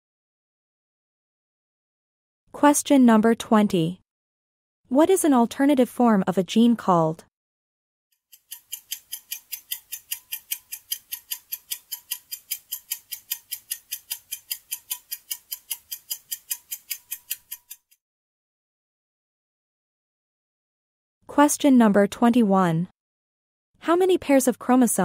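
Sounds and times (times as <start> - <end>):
clock ticking: 8.3 - 18.0.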